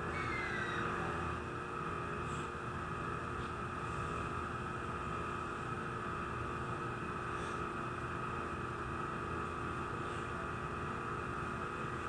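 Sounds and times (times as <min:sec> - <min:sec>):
electric train hum and hiss: 0:00.0 - 0:12.0
electrical equipment whine: 0:00.0 - 0:12.0.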